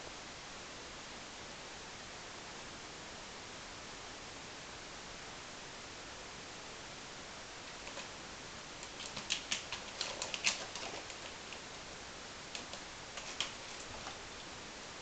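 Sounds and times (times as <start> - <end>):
cat claws scratching post: 7.7 - 8.2, 8.8 - 11.9, 12.5 - 14.6.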